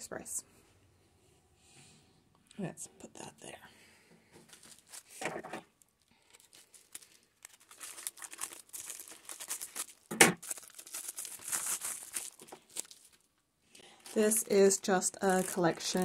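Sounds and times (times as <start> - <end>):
plastic mailer crinkling: 4.4 - 16.0.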